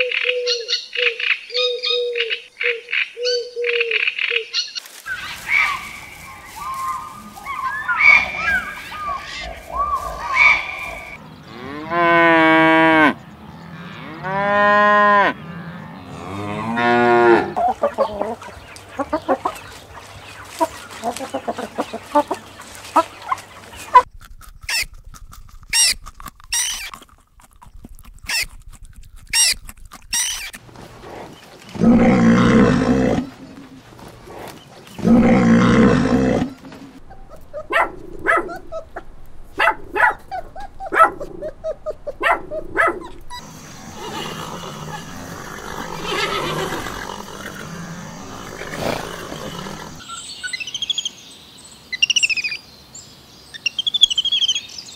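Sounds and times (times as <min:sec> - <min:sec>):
harsh animal calls: 0:05.1 - 0:19.7, 0:29.3 - 0:50.1
long animal calls: 0:06.7 - 0:11.2, 0:30.2 - 0:39.2, 0:39.8 - 0:50.1
chickens clucking: 0:17.2 - 0:24.1, 0:30.4 - 0:50.0.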